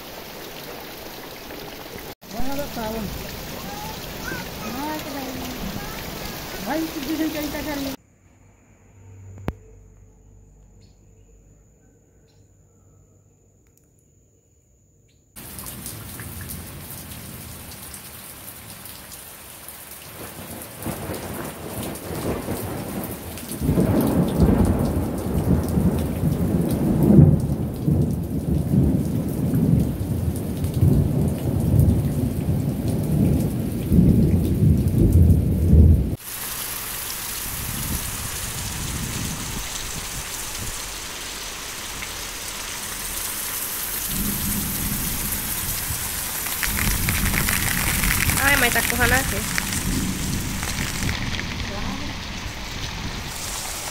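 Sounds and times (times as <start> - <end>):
rain falling: 0.0 - 8.0, 15.4 - 53.9
rolling thunder rumble: 20.2 - 36.2, 44.0 - 53.9.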